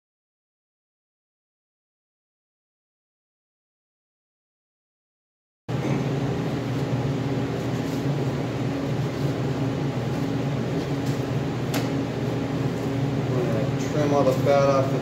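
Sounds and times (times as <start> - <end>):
electric fan humming: 5.7 - 15.0.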